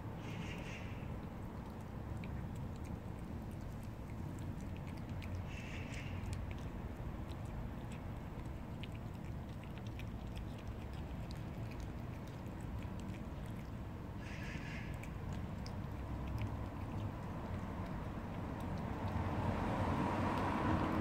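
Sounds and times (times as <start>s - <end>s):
cat chewing food: 0.0s - 21.0s
low background rumble: 0.0s - 21.0s.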